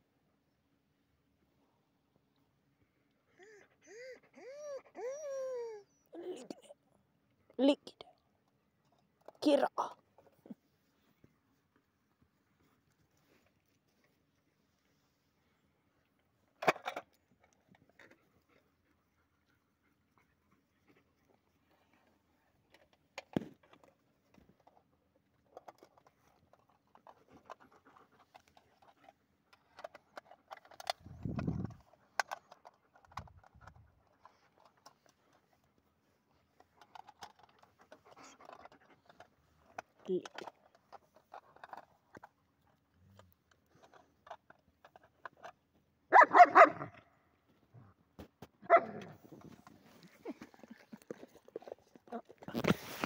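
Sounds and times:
dog barking: 46.1 - 47.0, 48.6 - 49.1.

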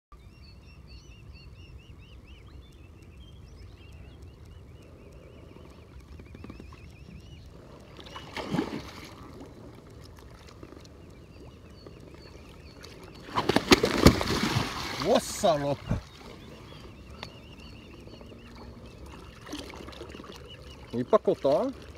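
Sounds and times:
songbird singing: 0.1 - 21.9
water lapping and sloshing: 4.7 - 21.9.

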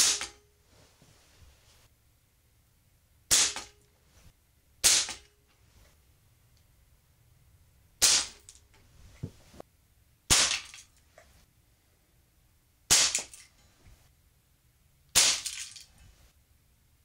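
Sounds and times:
air pistol shots: 0.0 - 0.4, 3.3 - 3.8, 4.8 - 5.3, 8.0 - 8.5, 10.3 - 10.7, 12.9 - 13.4, 15.2 - 15.6.

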